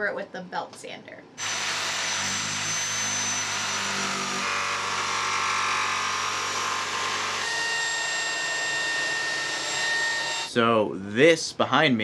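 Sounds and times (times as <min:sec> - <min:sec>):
jigsaw cutting plywood: 0:01.4 - 0:10.5.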